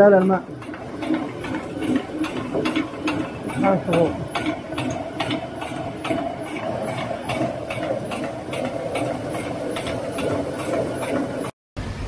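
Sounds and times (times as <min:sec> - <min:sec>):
millstone rumbling hum: 0:00.0 - 0:12.0.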